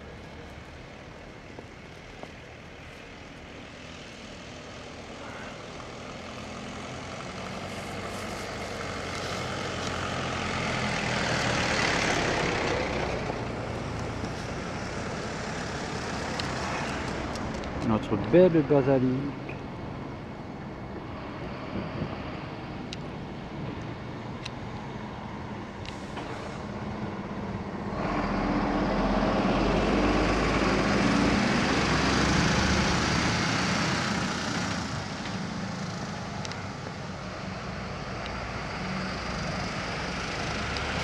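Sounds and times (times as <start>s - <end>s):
vehicle passing on snowy street: 0.0s - 41.0s.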